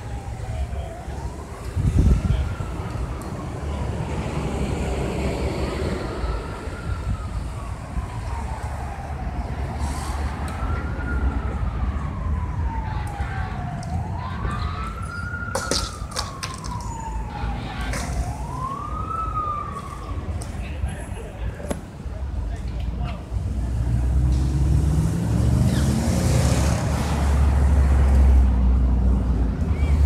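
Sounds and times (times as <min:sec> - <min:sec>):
emergency siren wailing: 0:00.0 - 0:21.5.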